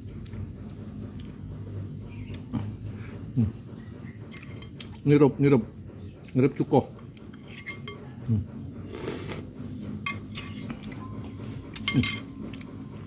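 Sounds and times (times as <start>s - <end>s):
slurping off a spoon: 8.9s - 9.5s
spoon clinking against bowl: 11.8s - 12.3s.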